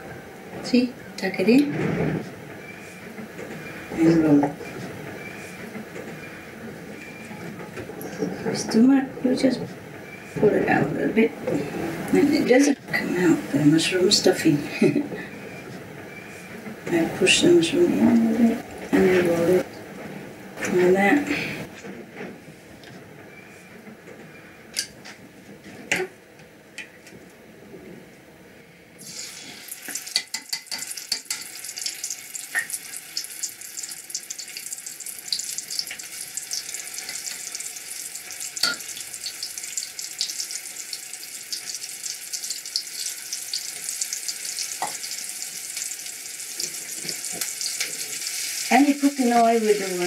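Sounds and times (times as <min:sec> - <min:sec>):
food deep-frying in oil: 0:29.0 - 0:50.0.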